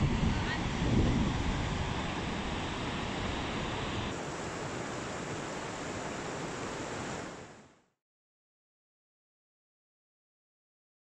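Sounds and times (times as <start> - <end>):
river rapids rushing: 0.2 - 7.7.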